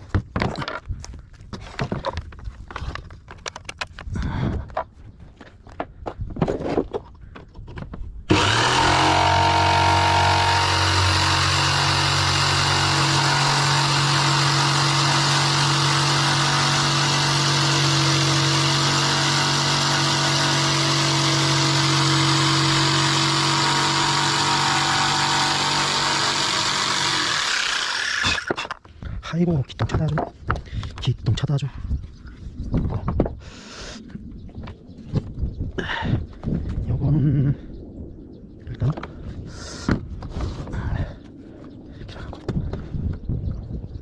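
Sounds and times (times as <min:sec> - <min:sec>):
electric motor humming with hiss: 0:08.3 - 0:28.4.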